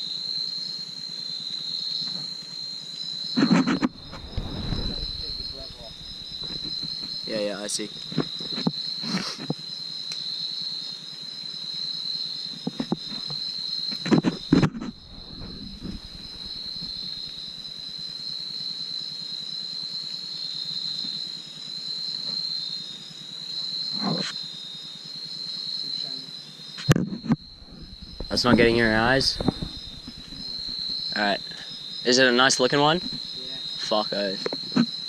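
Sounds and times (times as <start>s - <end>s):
crickets trilling: 0.0s - 35.0s
knocks and rustling branches: 3.4s - 8.8s, 12.7s - 17.8s, 26.9s - 31.2s.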